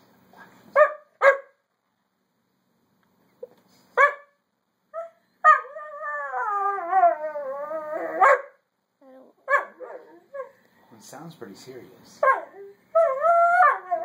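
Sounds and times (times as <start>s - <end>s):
dog barking: 0.8s - 1.6s, 4.0s - 4.4s, 8.2s - 8.6s, 9.5s - 10.5s, 12.2s - 12.6s
dog howling whine: 5.0s - 10.5s, 12.2s - 14.0s.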